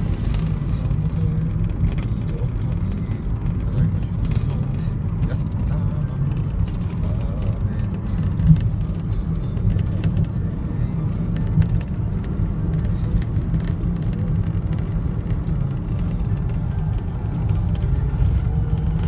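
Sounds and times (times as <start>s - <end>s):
vehicle engine and tyres rumbling: 0.0s - 19.0s.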